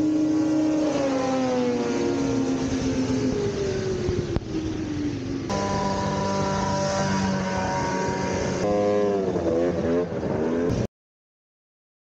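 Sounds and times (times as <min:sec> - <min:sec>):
snowmobile engine running: 0:05.5 - 0:10.8
snowmobile throttle blipping: 0:05.5 - 0:10.8.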